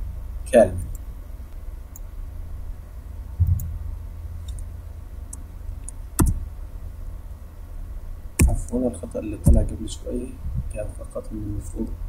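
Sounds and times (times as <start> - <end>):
steady low hum: 0.0 - 12.0
soft thump: 3.4 - 3.8.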